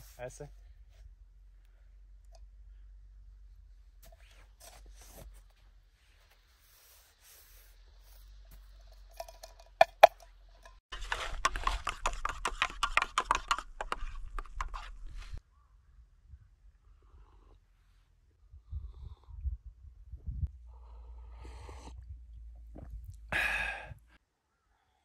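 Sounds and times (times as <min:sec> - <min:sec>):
metal pot clinking: 0:09.0 - 0:10.8
snow scraping in metal pot: 0:10.7 - 0:13.8.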